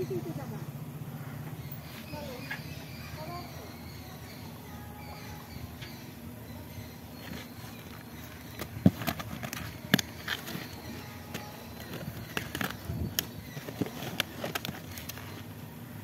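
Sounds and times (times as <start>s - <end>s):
cardboard scraping and crackling: 7.2s - 15.6s.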